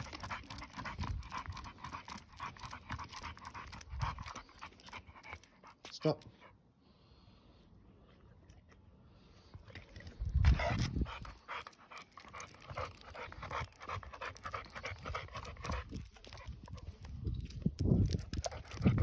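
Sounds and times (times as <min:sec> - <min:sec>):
dog panting: 0:00.0 - 0:06.6, 0:10.4 - 0:17.0.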